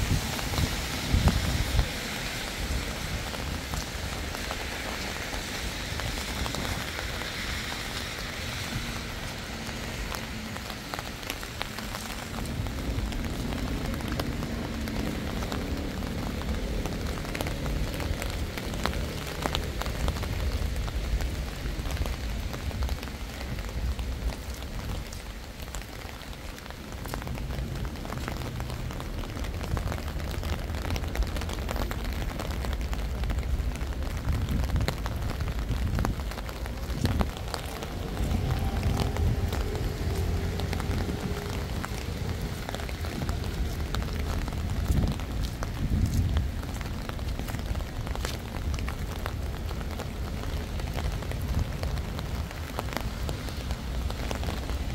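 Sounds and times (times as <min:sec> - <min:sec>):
steady rain: 0:00.0 - 0:54.9
raindrop ticks: 0:00.2 - 0:54.9
low rumble: 0:33.4 - 0:54.8.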